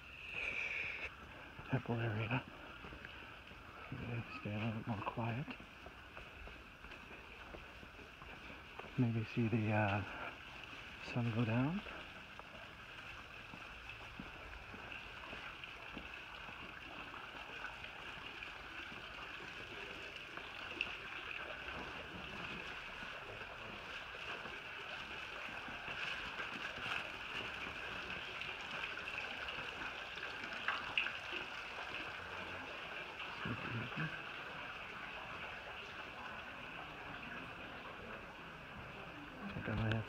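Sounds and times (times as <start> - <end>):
outdoor high hiss: 0.0 - 5.4.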